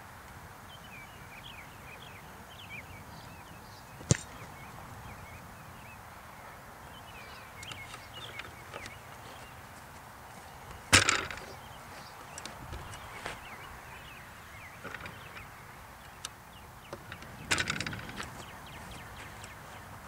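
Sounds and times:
foot kicking football: 0:04.0 - 0:05.2.

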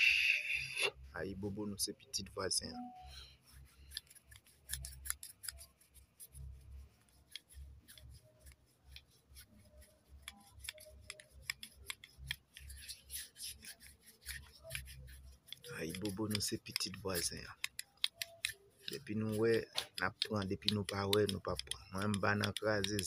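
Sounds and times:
hands rolling an egg: 0:03.5 - 0:23.0.

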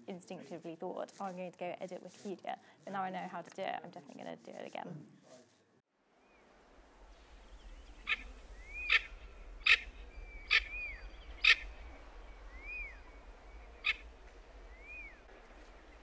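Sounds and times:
bird whistled note: 0:08.0 - 0:11.7, 0:12.5 - 0:13.2, 0:14.7 - 0:15.2.

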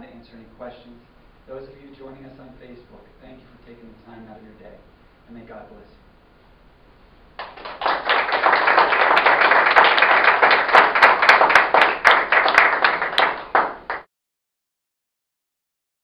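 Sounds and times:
audience applause: 0:07.4 - 0:14.1.

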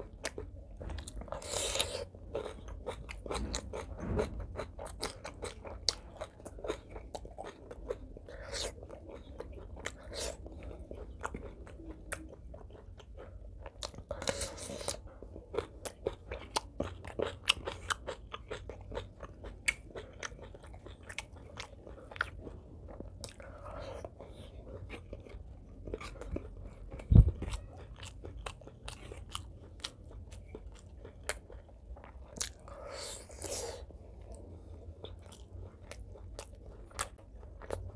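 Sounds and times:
chewing and crunching vegetable: 0:00.0 - 0:37.9
low thump: 0:03.4 - 0:04.4.

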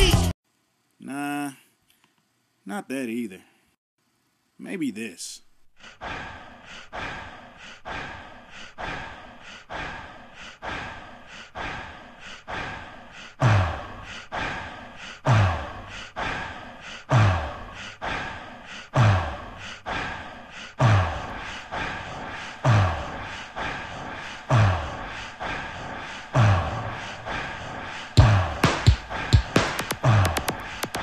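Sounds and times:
dance music with steady beat: 0:28.2 - 0:31.0.

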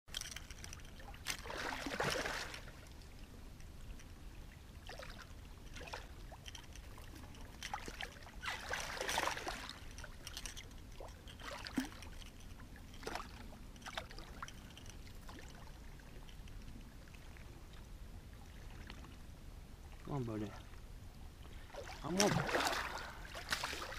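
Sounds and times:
fish splashing in water: 0:21.7 - 0:23.9.

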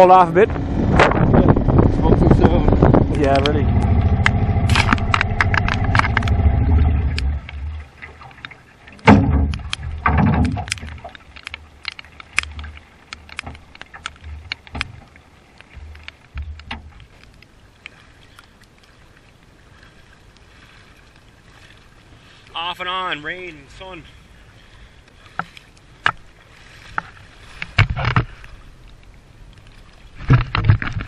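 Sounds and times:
outboard motor humming: 0:00.0 - 0:31.0
knocks on aluminum hull: 0:09.0 - 0:10.7
light ticks: 0:10.4 - 0:20.5, 0:26.9 - 0:29.9.

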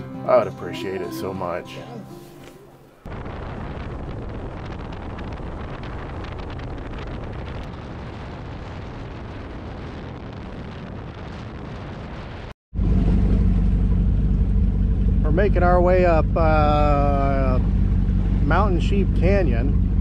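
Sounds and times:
wind buffeting microphone: 0:03.0 - 0:20.0
water streaming past boat hull: 0:12.8 - 0:20.0.

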